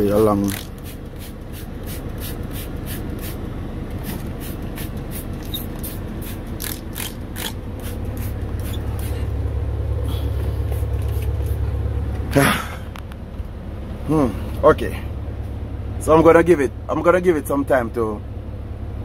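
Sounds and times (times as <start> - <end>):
truck engine idling: 0.0 - 19.0
spray bottle squirting: 0.4 - 3.4, 4.0 - 9.2.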